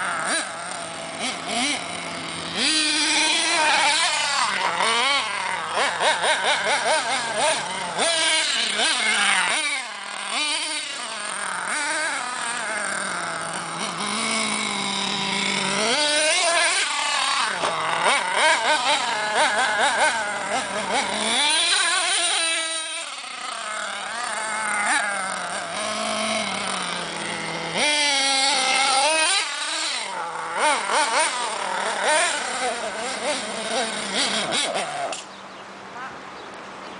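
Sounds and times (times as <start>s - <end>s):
rc truck engine revving: 0.0s - 36.2s.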